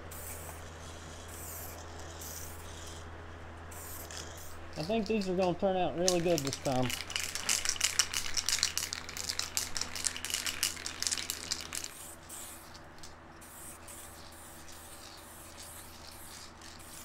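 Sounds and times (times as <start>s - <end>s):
aerosol spray hissing bursts: 1.3s - 2.8s, 3.7s - 4.6s, 10.3s - 12.8s, 13.4s - 17.0s.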